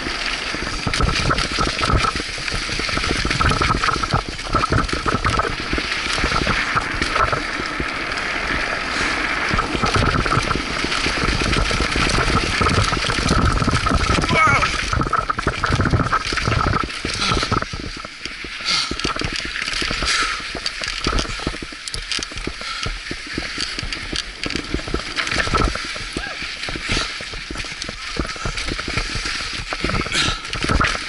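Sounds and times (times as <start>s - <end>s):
bike rattling and knocking: 0.0s - 31.0s
wind rushing over microphone: 0.0s - 31.0s.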